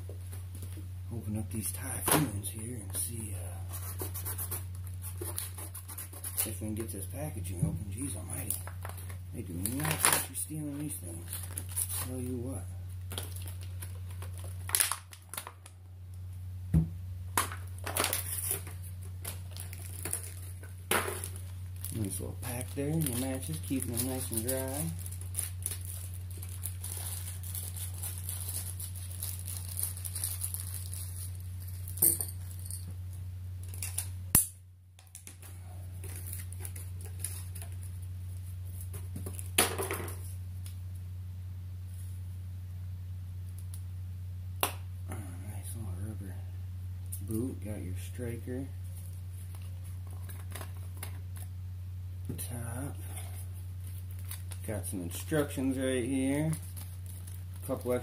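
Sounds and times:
steady low hum: 0:00.0 - 0:58.0
plastic packaging crackling: 0:07.9 - 0:15.8, 0:17.4 - 0:32.7, 0:36.0 - 0:39.6, 0:53.2 - 0:58.0.

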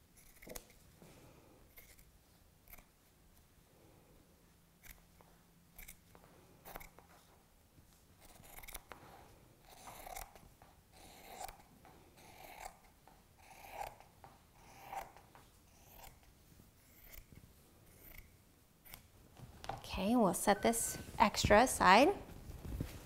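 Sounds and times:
scissors snipping fabric: 0:00.2 - 0:00.8, 0:05.8 - 0:07.1, 0:08.2 - 0:09.0, 0:09.6 - 0:19.1.

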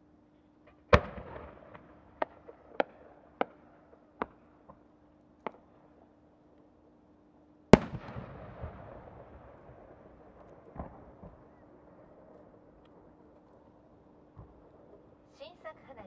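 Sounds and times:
sharp firework cracks: 0:00.7 - 0:04.4, 0:07.7 - 0:11.6
firework mortar boom: 0:00.9 - 0:03.6, 0:07.8 - 0:11.6.

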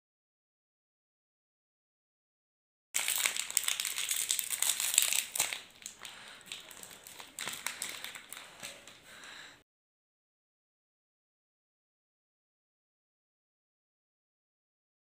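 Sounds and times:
snack wrapper crinkling: 0:03.0 - 0:09.4.

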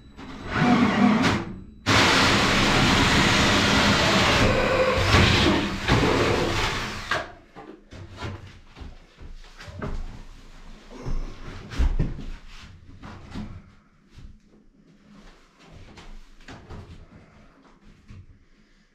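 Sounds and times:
cordless drill cutting plasterboard: 0:00.3 - 0:07.3.

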